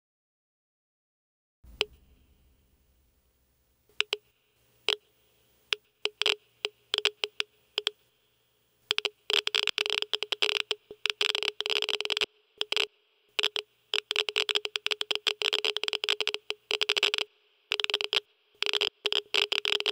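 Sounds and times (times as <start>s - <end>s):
electronic clicks and crackling: 1.7s - 2.2s, 3.9s - 8.1s, 8.8s - 19.9s.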